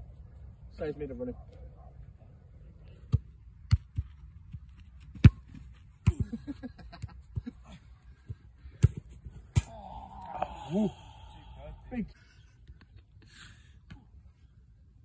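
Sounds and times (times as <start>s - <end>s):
football kicked and bouncing: 3.1s - 7.6s, 8.2s - 9.7s.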